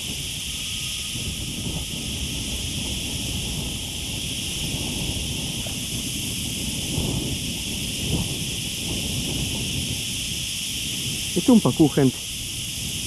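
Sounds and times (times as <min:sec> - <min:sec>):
high hiss: 0:00.0 - 0:13.0
wind buffeting microphone: 0:00.0 - 0:13.0.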